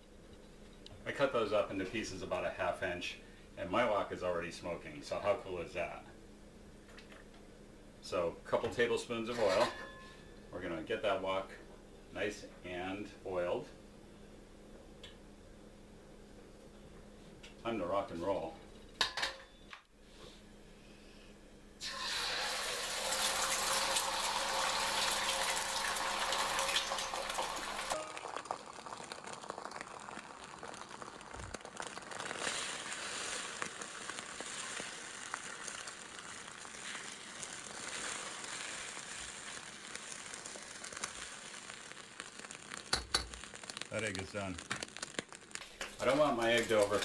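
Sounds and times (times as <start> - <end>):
egg sizzling in hot oil: 21.8 - 47.0.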